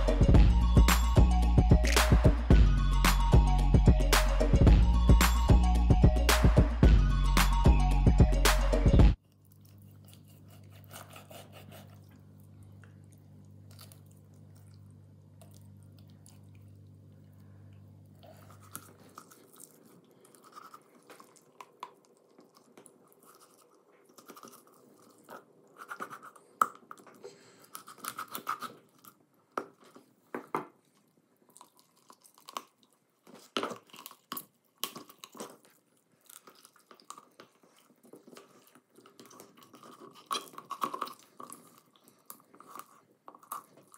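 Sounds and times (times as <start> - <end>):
knife crunching through bone: 9.6 - 12.3, 27.7 - 29.2, 38.3 - 43.9.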